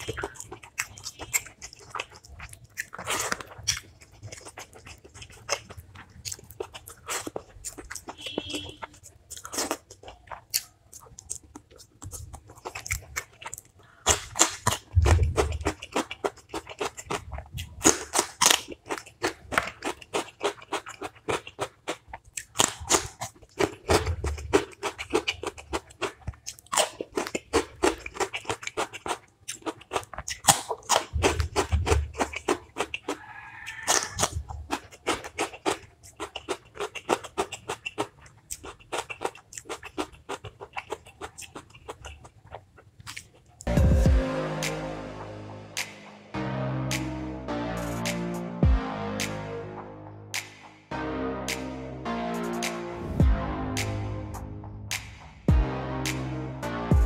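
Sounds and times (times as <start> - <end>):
person chewing crunchy food: 0.0 - 44.2.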